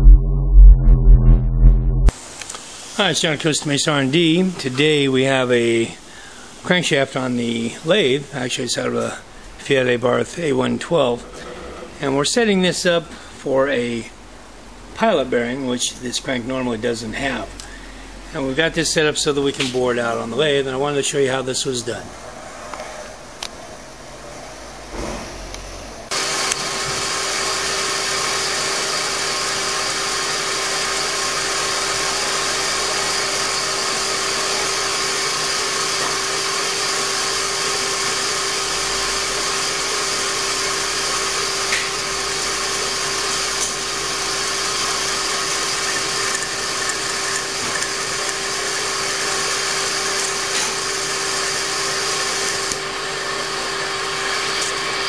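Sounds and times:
boring bar cutting metal: 26.1s - 55.0s
metal lathe running: 26.1s - 55.0s.

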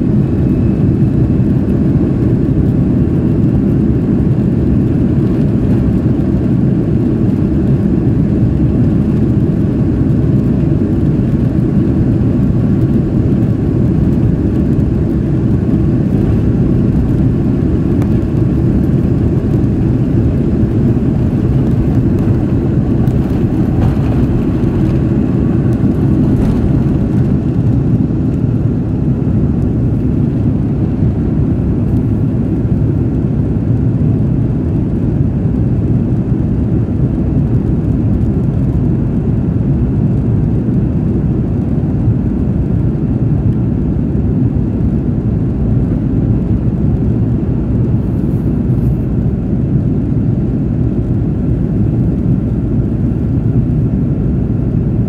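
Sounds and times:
jet engines rumbling at takeoff: 0.0s - 55.0s.

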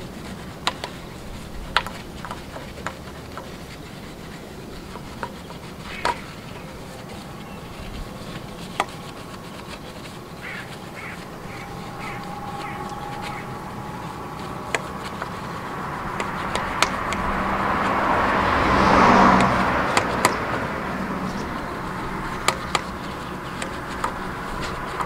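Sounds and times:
steady background hum: 0.0s - 18.3s
faint steady tone: 6.3s - 18.2s.

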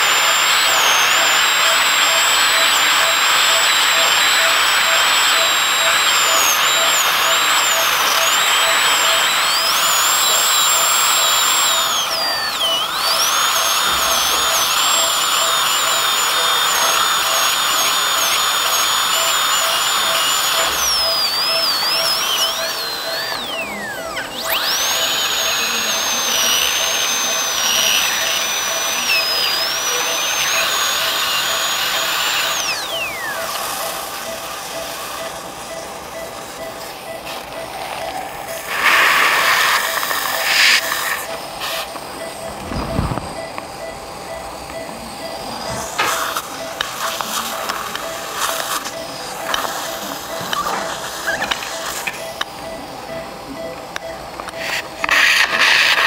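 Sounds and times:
dental drill whining: 0.0s - 56.0s
suction hiss: 38.6s - 41.9s.

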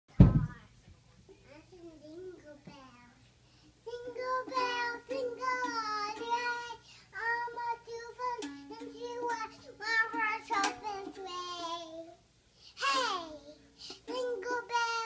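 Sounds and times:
toddler singing: 1.6s - 3.2s, 3.8s - 12.2s, 12.8s - 15.0s
toy guitar strums: 8.3s - 11.2s.

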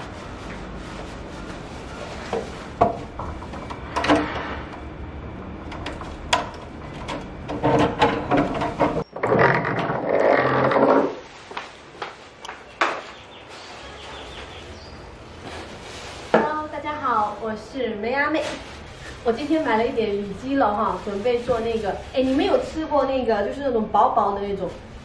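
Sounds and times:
plastic bag rustling: 0.0s - 3.2s, 11.1s - 25.0s
low background hum: 0.0s - 9.6s, 11.3s - 25.0s.

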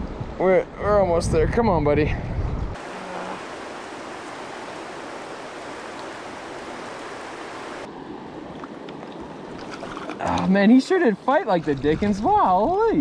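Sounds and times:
river current rushing: 2.8s - 10.2s.

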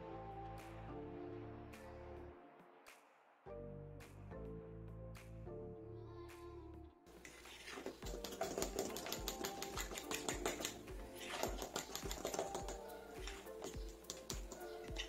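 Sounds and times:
background music with steady beat: 0.0s - 15.0s
fork scraping glass bowl: 7.2s - 15.0s.

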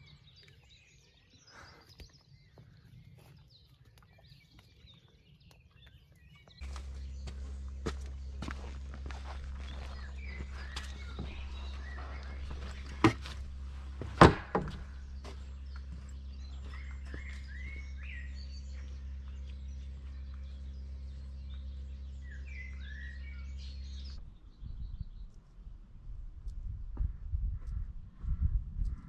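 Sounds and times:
small birds chirping: 0.0s - 29.0s
low rumble: 6.6s - 29.0s
wooden knocks: 11.2s - 15.1s.

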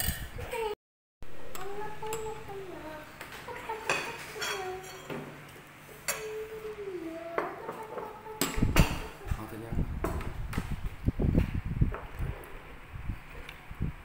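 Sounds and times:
cutlery clinking on plates: 3.8s - 5.3s.

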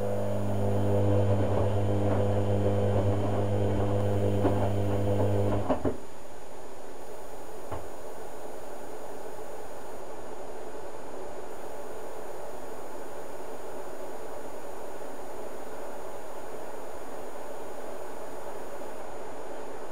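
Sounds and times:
washing machine motor humming: 0.0s - 6.0s.

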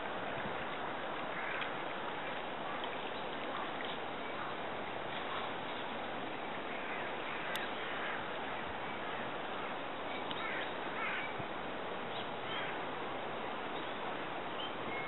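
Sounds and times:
caw-like bird calls: 1.4s - 1.6s, 6.7s - 8.3s, 10.4s - 11.4s, 12.5s - 12.8s.

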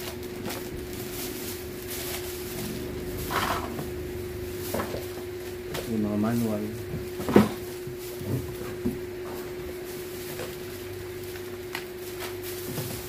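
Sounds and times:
electrical hum: 0.0s - 13.0s
plastic bag rustling: 0.0s - 13.0s.

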